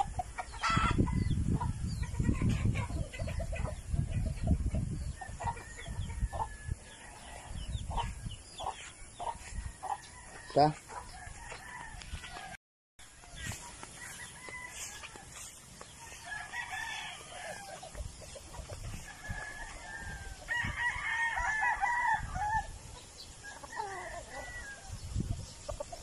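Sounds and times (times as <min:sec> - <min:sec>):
chickens clucking: 0:00.0 - 0:12.4, 0:13.1 - 0:20.5, 0:22.9 - 0:26.0
rooster crowing: 0:13.4 - 0:15.5, 0:16.2 - 0:17.8, 0:19.0 - 0:22.7, 0:23.5 - 0:25.0.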